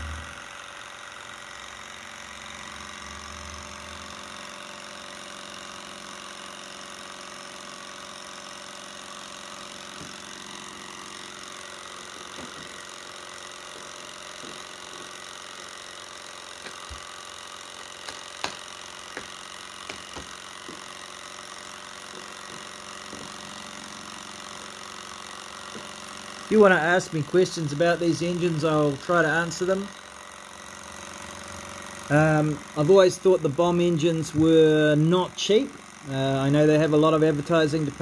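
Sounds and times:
stirling engine running: 0:09.0 - 0:38.0.

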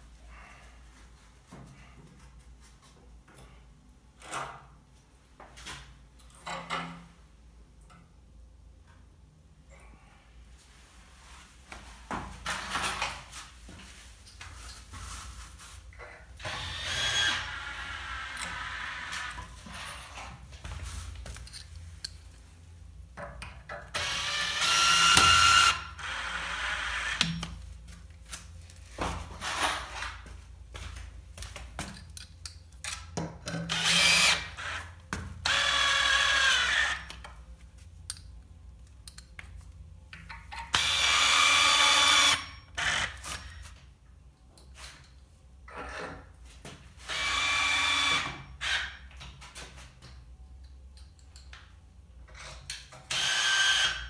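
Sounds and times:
electric drill whining: 0:16.4 - 0:19.9, 0:24.0 - 0:27.4, 0:33.7 - 0:34.8, 0:35.5 - 0:37.2, 0:40.8 - 0:43.3, 0:47.1 - 0:49.0, 0:53.1 - 0:54.0.

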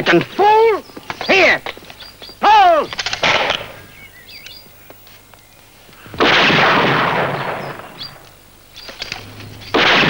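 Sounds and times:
birds chirping faintly: 0:00.0 - 0:06.2, 0:07.2 - 0:09.9
shotgun blast: 0:03.1 - 0:03.8, 0:06.2 - 0:08.2, 0:09.7 - 0:10.0.

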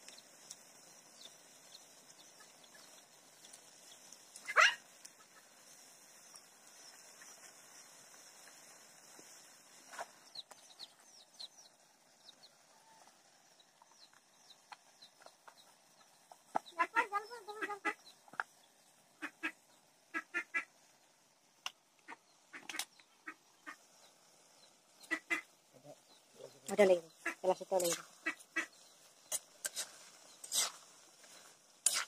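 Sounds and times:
farm birds calling: 0:19.2 - 0:20.7, 0:25.0 - 0:29.1.

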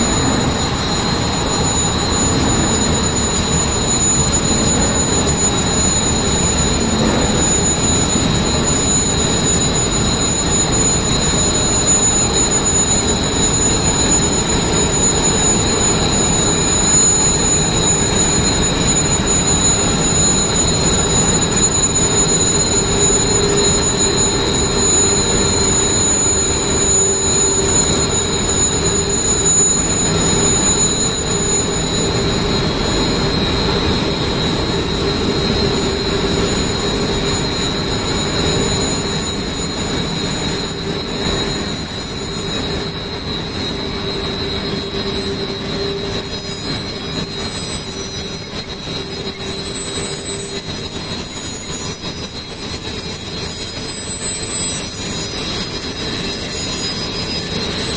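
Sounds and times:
wire drawing machine running: 0:00.0 - 0:57.9.

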